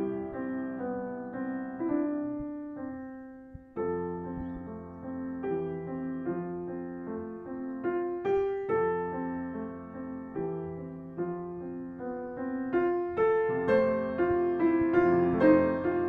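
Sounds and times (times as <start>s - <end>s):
gentle piano music: 0.0s - 16.0s.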